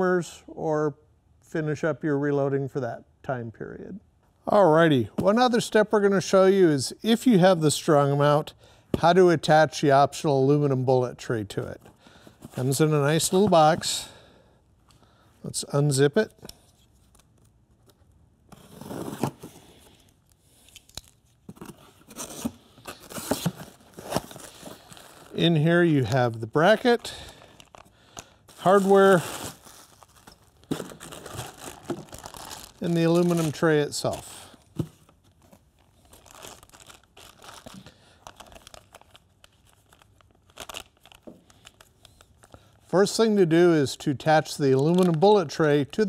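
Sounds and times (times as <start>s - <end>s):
packing tape tearing: 18.5s - 34.9s, 36.0s - 42.4s
plastic bag crinkling: 22.9s - 34.9s, 35.6s - 42.4s.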